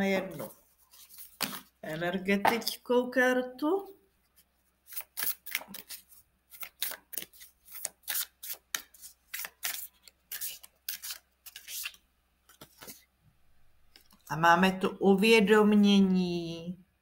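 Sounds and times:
cards being shuffled: 0.3 - 2.8, 4.8 - 13.1.

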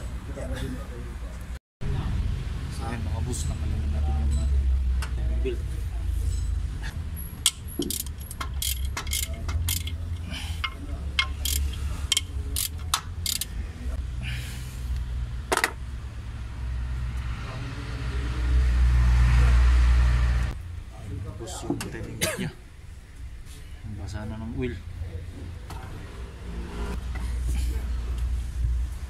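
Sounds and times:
metal tools clinking on engine: 7.4 - 13.5
toothed belt rasping: 7.4 - 13.6.

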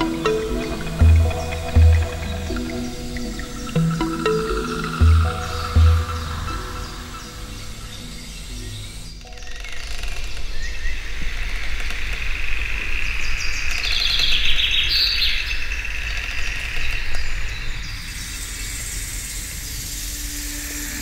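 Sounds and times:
birds singing and chirping: 0.0 - 9.8.

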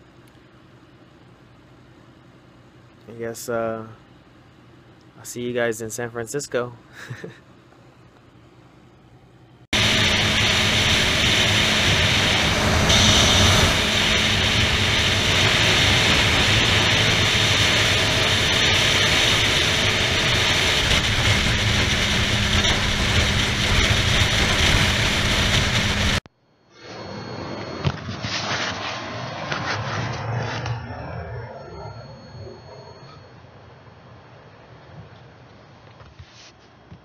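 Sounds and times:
motorcycle engine drone: 9.5 - 35.7.

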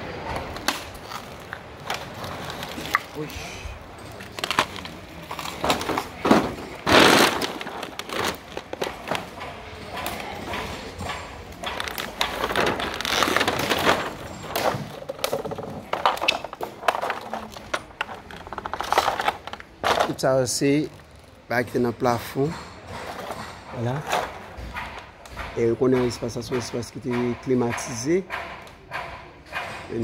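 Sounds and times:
footsteps crunching over debris: 4.0 - 9.5, 11.6 - 20.2.

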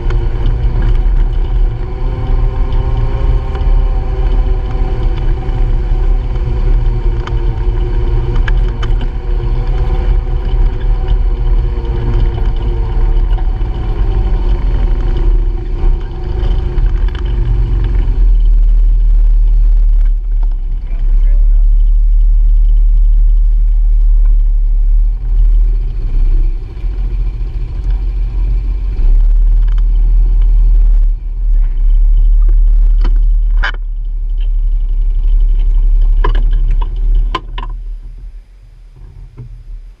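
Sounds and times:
vehicle engine rumble: 0.0 - 40.0
sharp knocks and rattles: 21.6 - 37.8.

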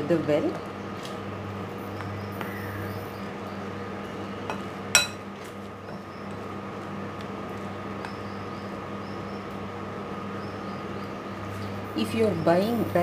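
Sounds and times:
metal spoon clinking on glass bowl: 4.5 - 5.2.

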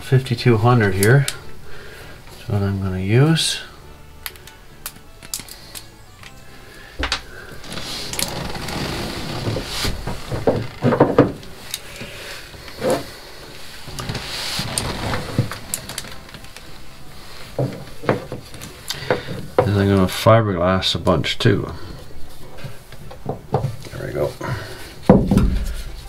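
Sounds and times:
gloved hands rustling and rubbing: 0.5 - 19.9.

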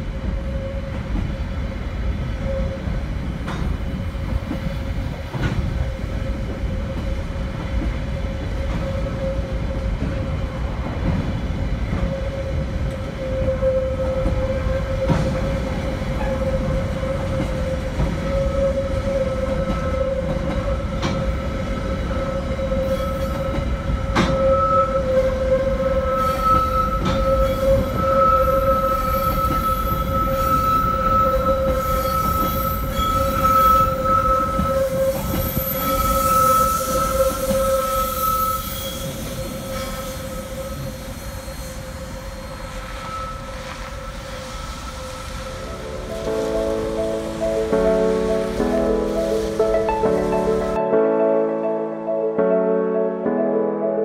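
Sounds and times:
freight train rumble: 0.0 - 51.8
train wheels squealing: 4.5 - 46.2.

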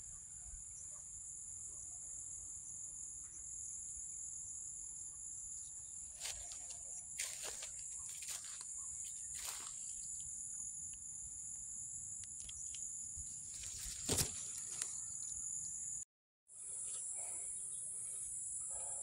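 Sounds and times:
high-pitched insect chorus: 0.0 - 16.0, 16.6 - 19.0
brief rustles: 13.5 - 15.0.

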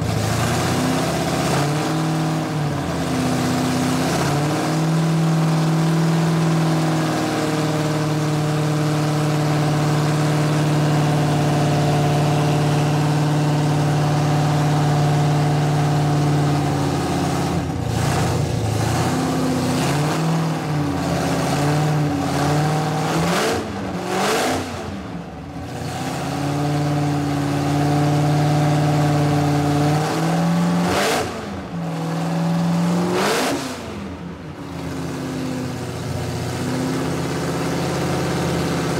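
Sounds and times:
drag car engine idling and revving: 0.0 - 38.9.

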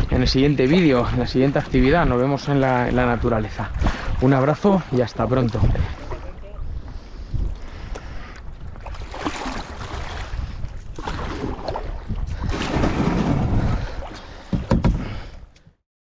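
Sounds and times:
water sloshing around kayak: 0.0 - 15.6
wind buffeting microphone: 0.0 - 15.6
sharp knocks: 14.5 - 15.1.

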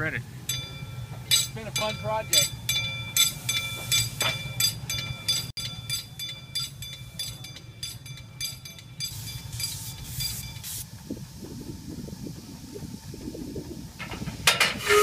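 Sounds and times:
ringing metallic clinks: 0.5 - 10.7
steam hissing: 7.0 - 15.0.

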